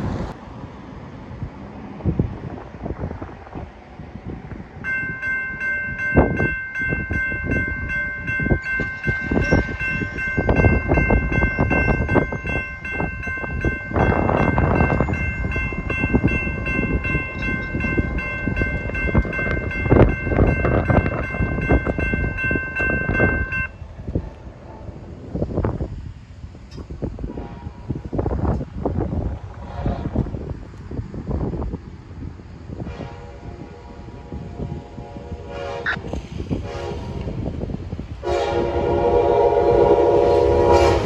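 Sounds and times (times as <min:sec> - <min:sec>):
road rumble: 0:00.0 - 0:40.7
gusty wind: 0:00.0 - 0:41.0
railroad crossing bell ringing: 0:04.8 - 0:23.9.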